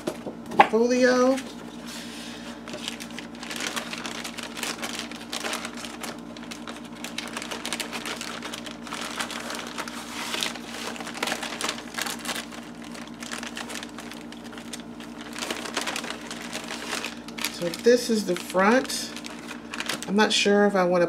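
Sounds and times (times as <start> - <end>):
steady low hum: 0.0 - 21.0
paper rustling: 1.6 - 20.1.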